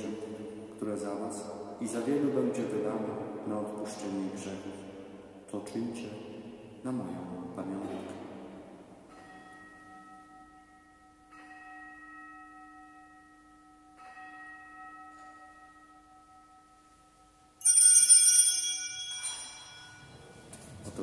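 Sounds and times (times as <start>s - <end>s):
small bells shaken: 17.6s - 20.5s.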